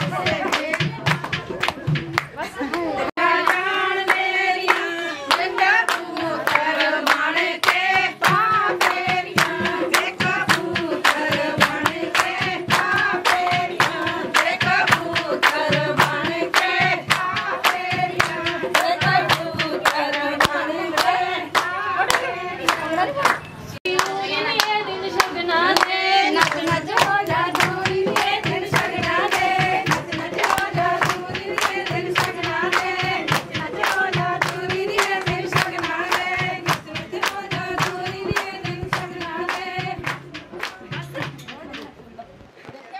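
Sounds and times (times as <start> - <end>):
hand-clapping in time: 0.0 - 41.9
group singing a hymn: 3.2 - 23.2, 23.8 - 40.5.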